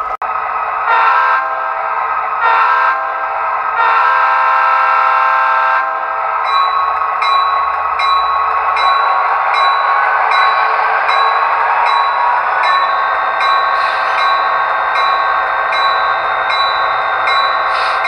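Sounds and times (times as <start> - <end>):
diesel locomotive horn blasts: 0.9 - 6.3
locomotive bell ringing: 6.0 - 18.0.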